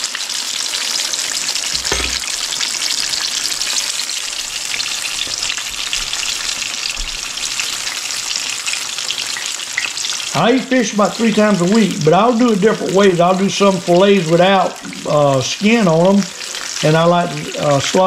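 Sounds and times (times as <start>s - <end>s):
fish sizzling in hot oil: 0.0s - 18.0s
brief knock: 1.8s - 2.3s.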